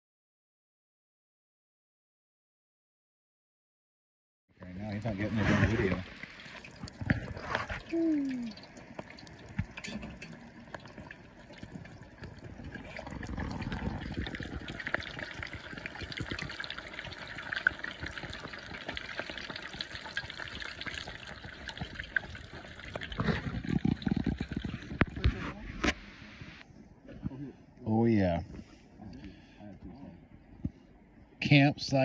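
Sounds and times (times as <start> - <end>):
hot oil sizzling and crackling: 4.8 - 25.1.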